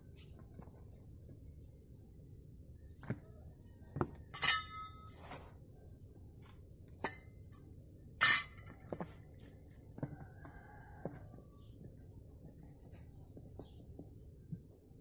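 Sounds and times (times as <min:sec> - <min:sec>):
trowel scraping metal bucket: 0:04.3 - 0:05.6, 0:08.2 - 0:08.8.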